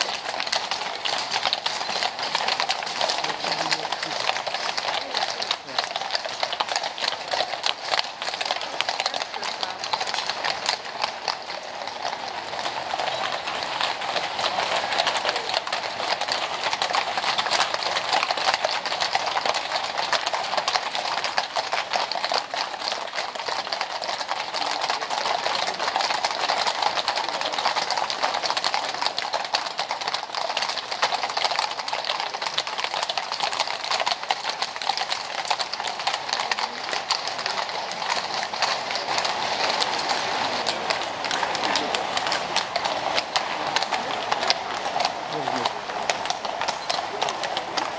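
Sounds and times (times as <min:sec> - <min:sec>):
horse hooves on brick paving: 0:00.0 - 0:47.9.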